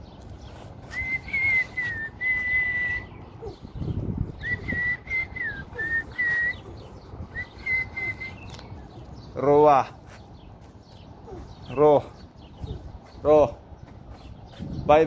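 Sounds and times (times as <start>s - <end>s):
person whistling a tune: 0.9s - 3.1s, 4.4s - 6.6s, 7.3s - 8.5s.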